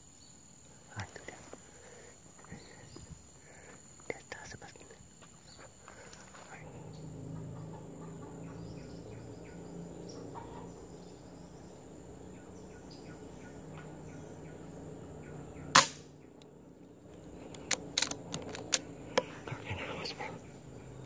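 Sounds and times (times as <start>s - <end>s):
faint insect calls: 0.0s - 21.0s
low steady hum: 0.0s - 21.0s
faint bird calls: 0.8s - 17.8s
rifle shot: 15.7s - 16.1s.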